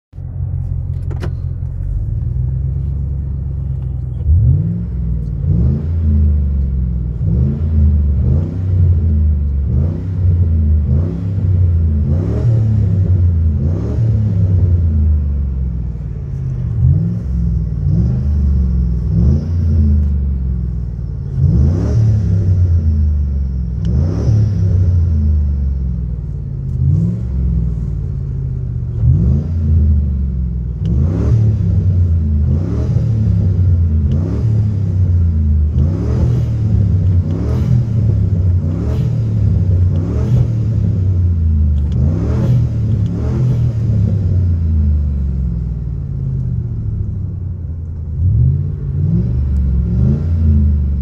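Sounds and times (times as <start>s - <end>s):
car engine revving: 0.2s - 51.0s.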